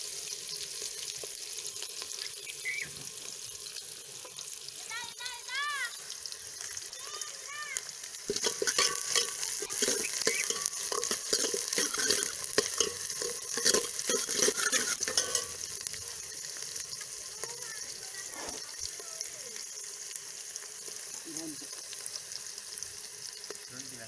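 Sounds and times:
onions sizzling in hot oil: 0.0 - 24.0
metal ladle scraping pot: 8.3 - 16.6.

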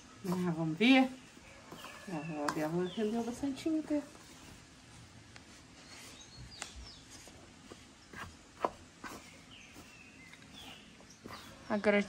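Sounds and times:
wooden spoon stirring dough in bowl: 0.0 - 12.0
faint bird chirps: 1.3 - 3.6, 9.1 - 12.0.

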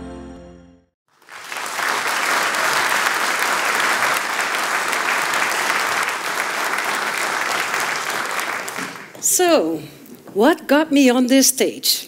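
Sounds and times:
audience applauding: 1.1 - 9.2.

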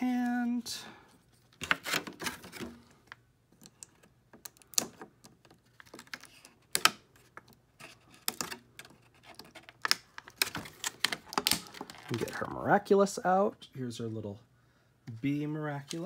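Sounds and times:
nippers snapping plastic: 3.6 - 7.0.

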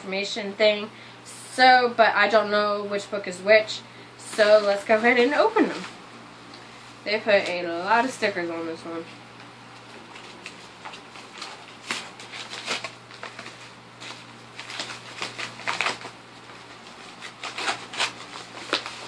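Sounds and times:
paper envelope tearing and crinkling: 10.0 - 19.0.

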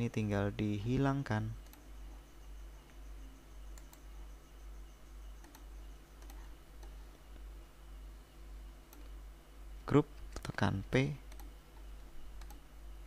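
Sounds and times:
low hum: 0.1 - 10.3
computer mouse clicks: 1.6 - 1.9, 3.7 - 4.1, 5.4 - 7.0, 8.9 - 9.2, 11.3 - 12.7.

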